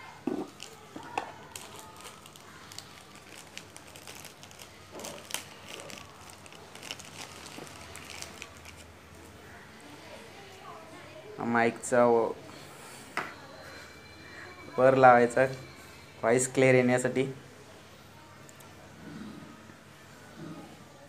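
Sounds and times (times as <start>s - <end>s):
plastic packet crinkling: 0.4s - 8.9s.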